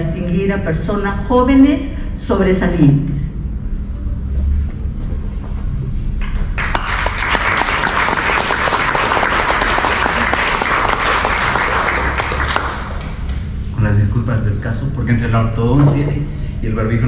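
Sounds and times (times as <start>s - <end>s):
many hands clapping: 6.2s - 13.5s.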